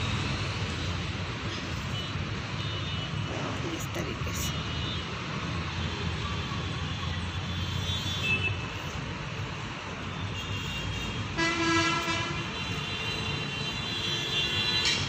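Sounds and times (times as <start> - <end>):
low rumble of traffic: 0.0 - 15.0
vehicle horn: 10.2 - 15.0.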